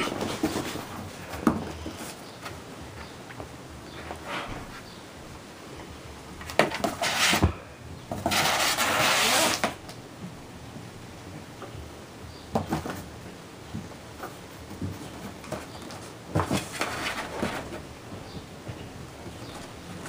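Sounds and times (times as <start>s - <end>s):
knocks and scrapes on cardboard: 0.0s - 2.2s, 6.6s - 7.5s, 8.1s - 9.7s, 14.2s - 17.8s
kitten claws scratching cardboard: 6.6s - 7.5s, 8.1s - 9.8s.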